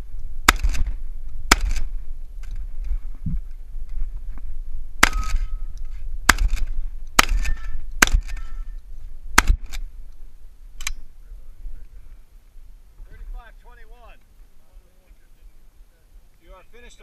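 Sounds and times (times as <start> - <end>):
shotgun shots: 0.5 - 0.9, 1.5 - 1.9, 5.0 - 5.6, 6.3 - 8.6, 9.4 - 9.8.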